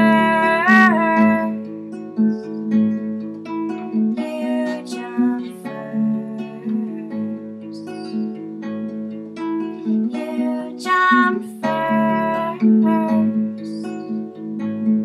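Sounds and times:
woman singing: 0.0 - 1.7, 4.1 - 8.2, 10.0 - 14.0
acoustic guitar folk accompaniment: 0.0 - 15.0.

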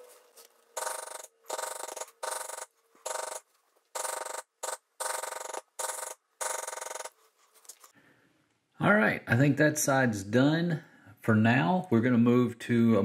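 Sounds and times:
maul tapping leather tool: 4.0 - 7.1.

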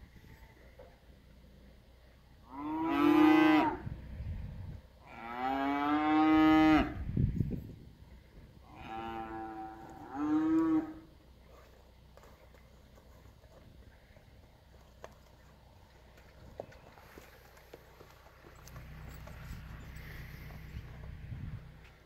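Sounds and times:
cattle mooing: 2.5 - 3.9, 5.0 - 7.0, 8.7 - 11.1.

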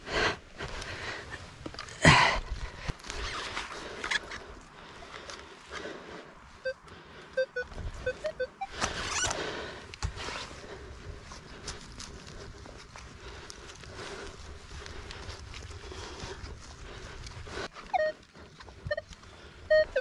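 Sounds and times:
metal detector short beeps: 18.0 - 18.2, 19.7 - 20.0.

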